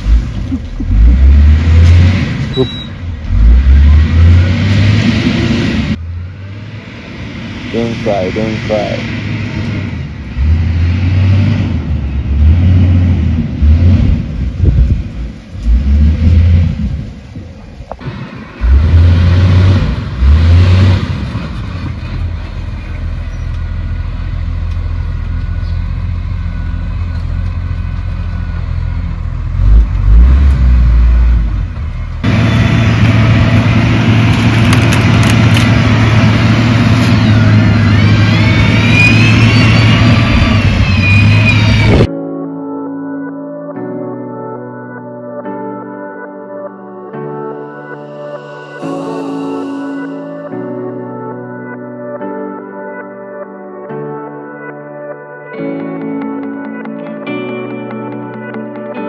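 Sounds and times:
diesel engine rumbling: 0.0 - 42.1
rising whine: 1.2 - 20.6, 23.3 - 42.1.

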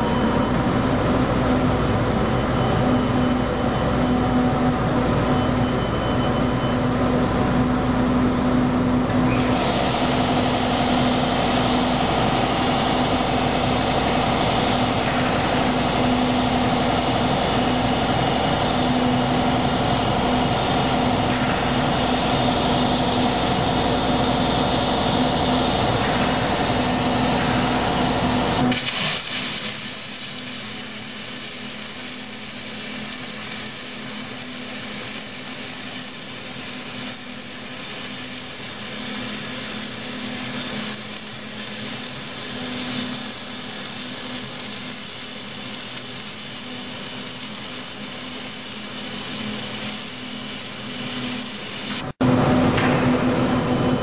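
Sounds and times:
machine hum: 0.0 - 28.8, 30.3 - 54.0
arc welding crackle: 9.0 - 52.2.

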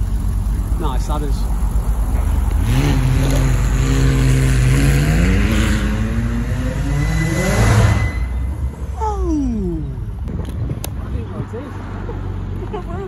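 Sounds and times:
car engine pulling away: 0.0 - 9.0.

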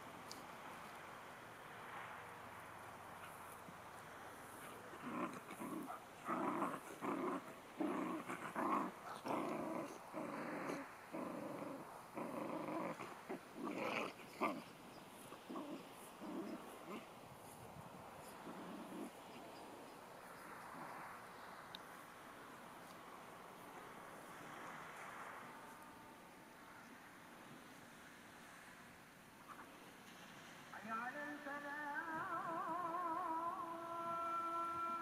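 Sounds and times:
dog growling: 4.7 - 14.7, 15.4 - 17.1, 18.3 - 19.2.

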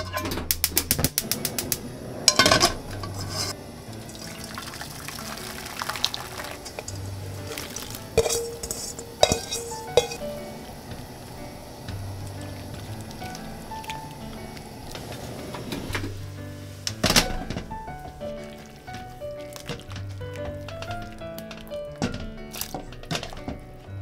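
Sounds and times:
utensil knocking metal pan: 0.0 - 1.7, 2.3 - 3.6, 6.4 - 10.4, 19.6 - 23.6
soft background music: 0.0 - 24.0
gas burner igniter clicking: 0.3 - 3.3
water rushing into frying pan: 0.9 - 23.6.

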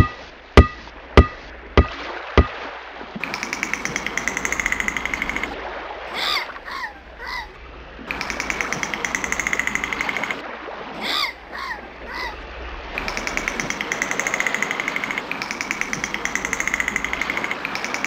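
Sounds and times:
dolphin click train: 0.0 - 2.5, 3.2 - 5.6, 8.1 - 10.4, 13.0 - 18.0
sharp knocks: 0.0 - 2.6.

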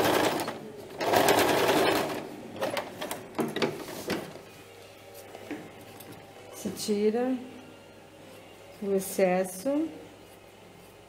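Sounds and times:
sewing machine stitching: 0.0 - 3.2.

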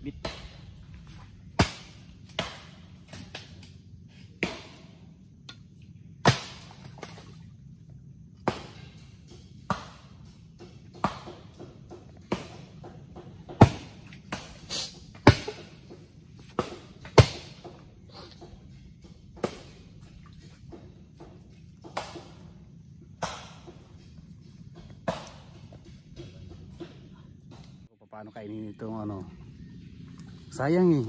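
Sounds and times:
axe chopping wood: 1.5 - 3.5, 6.2 - 7.0, 8.4 - 9.0, 9.6 - 14.6, 15.2 - 17.8, 19.4 - 19.8, 21.8 - 22.5, 23.2 - 24.0, 24.8 - 27.7.

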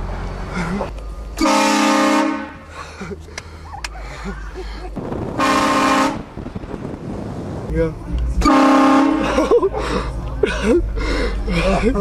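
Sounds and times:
air horn blasts: 1.4 - 2.7, 5.4 - 6.3, 8.4 - 9.4.

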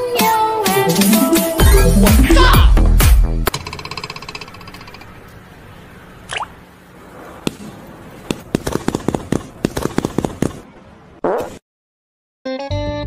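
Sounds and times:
tone: 1.0 - 2.8.

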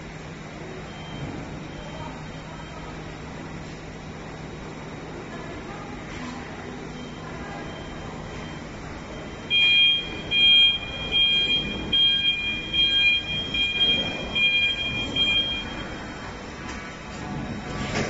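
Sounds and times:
forklift warning beeper: 6.9 - 16.6.

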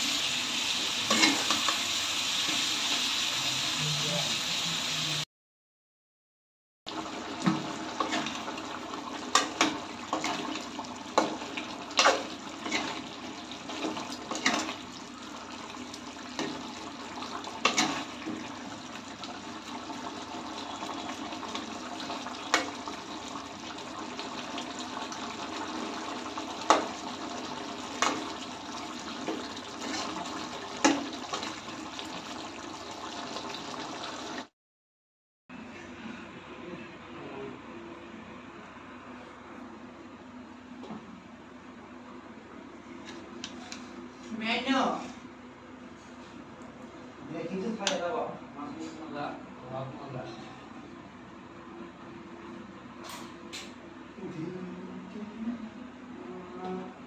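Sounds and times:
gravy bubbling in a metal pot: 6.9 - 34.5.

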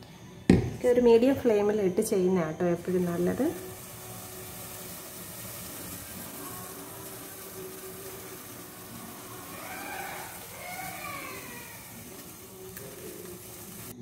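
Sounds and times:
gas stove burner hiss: 0.0 - 14.0.

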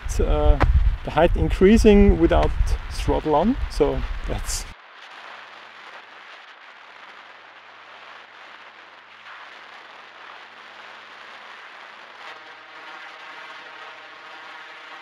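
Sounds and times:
steady hiss: 0.0 - 15.0
buzzing multi-pitched tone: 8.1 - 15.0.

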